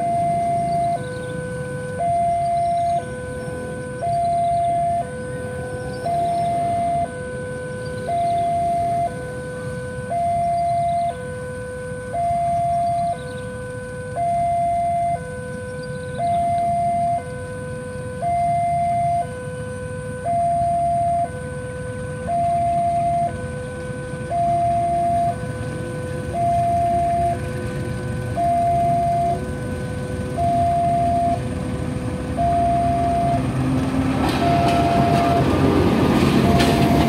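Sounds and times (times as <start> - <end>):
level crossing two-tone alarm: 0.0 - 37.0
steady low rumble: 0.0 - 37.0.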